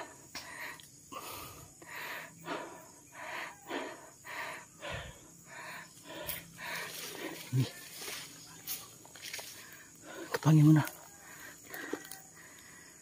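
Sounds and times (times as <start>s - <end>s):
footsteps through grass: 6.1s - 9.8s.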